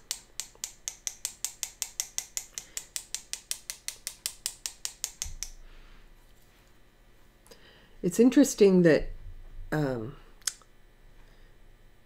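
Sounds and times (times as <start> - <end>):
knife tapping brush handle: 0.0 - 5.6.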